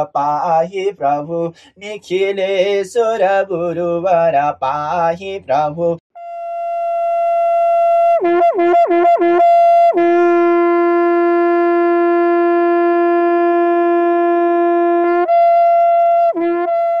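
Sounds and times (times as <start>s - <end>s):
conch shell blown: 6.1s - 17.0s.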